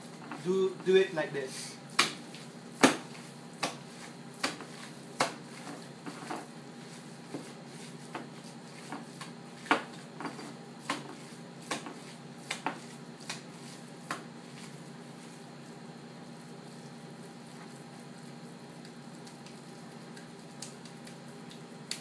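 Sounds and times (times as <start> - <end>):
steady low hum: 0.0 - 22.0
wet slaps of meat patty: 1.9 - 5.5, 10.8 - 14.3, 18.8 - 22.0.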